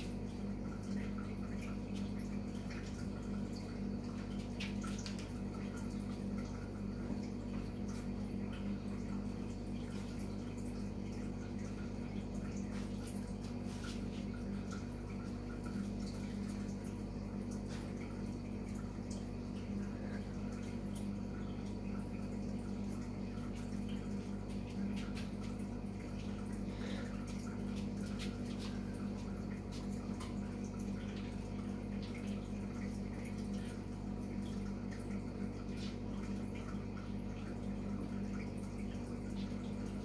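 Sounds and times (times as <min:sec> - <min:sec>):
steady low hum: 0:00.0 - 0:40.0
water dripping: 0:00.0 - 0:40.0.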